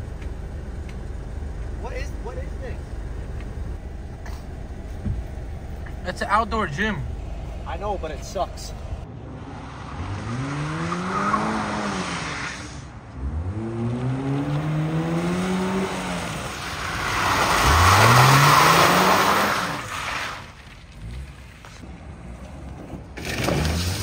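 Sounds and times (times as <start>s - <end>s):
car engine revving: 0.0s - 21.4s
tyres skidding on wet pavement: 9.6s - 24.0s.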